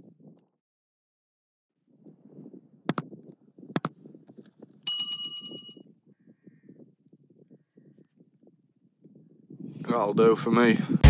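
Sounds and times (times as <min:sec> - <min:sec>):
wind rumble on microphone: 0:00.0 - 0:00.6, 0:01.8 - 0:11.0
sharp double clicks: 0:02.9 - 0:03.1
bright bell ding: 0:04.9 - 0:05.8.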